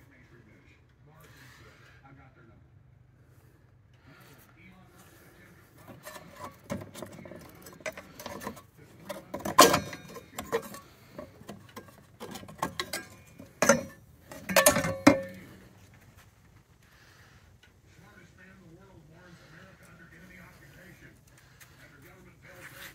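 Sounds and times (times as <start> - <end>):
hands handling engine parts: 5.0 - 17.9
sharp metal clanks: 5.9 - 15.7.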